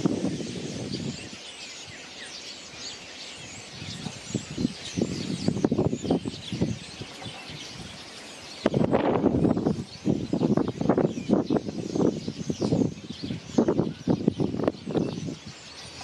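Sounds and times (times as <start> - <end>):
starlings chattering: 0.0 - 16.0.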